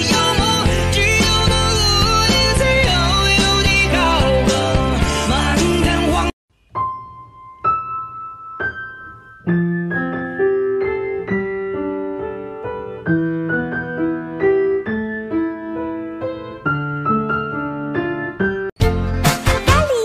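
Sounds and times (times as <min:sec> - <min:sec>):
gentle piano music: 0:06.6 - 0:19.2.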